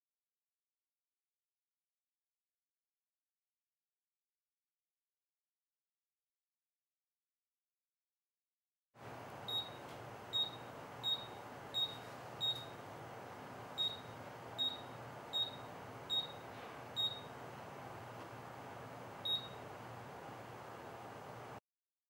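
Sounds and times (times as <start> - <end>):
short high beeps: 9.5 - 9.8, 10.4 - 12.7, 13.8 - 16.4, 17.0 - 17.3, 19.2 - 19.6.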